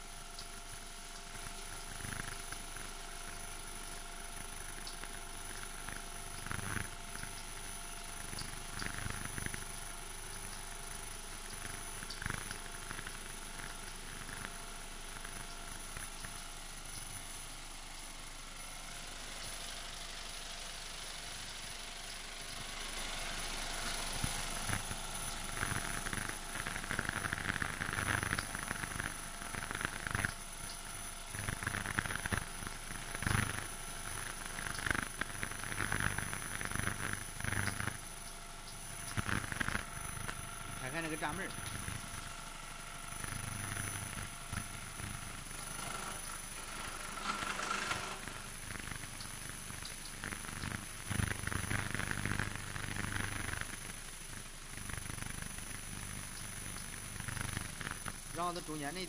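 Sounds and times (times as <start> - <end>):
fast buzzing rattle: 0.0 - 59.0
vibrating sieve machine hum: 0.0 - 59.0
high whine: 23.3 - 42.4.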